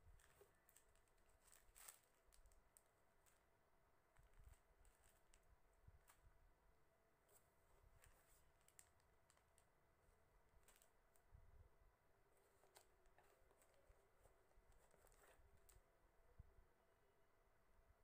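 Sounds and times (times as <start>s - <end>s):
plastic bags crinkling: 0.0s - 3.4s.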